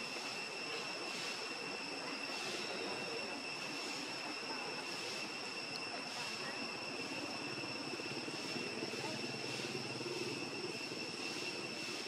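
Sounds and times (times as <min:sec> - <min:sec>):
high-pitched insect drone: 0:00.0 - 0:12.0
low engine-like rumble: 0:03.4 - 0:12.0.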